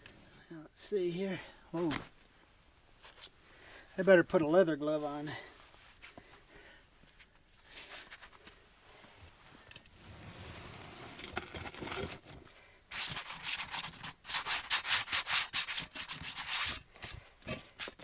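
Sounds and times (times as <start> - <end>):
gloved hands scraping sand: 10.0 - 12.2, 12.9 - 18.0.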